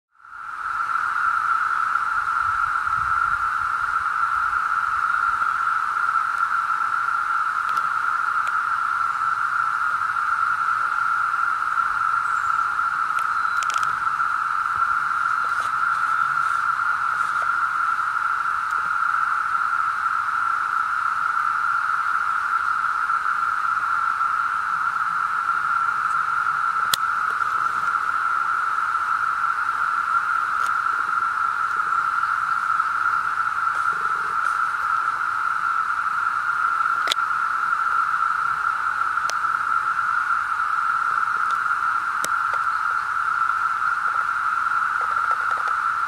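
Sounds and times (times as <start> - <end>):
cicadas droning chorus: 0.1 - 46.0
faint clicks: 7.6 - 8.6, 12.5 - 14.2, 26.8 - 28.0, 37.0 - 37.2, 39.2 - 39.5, 41.4 - 43.0, 44.9 - 45.9.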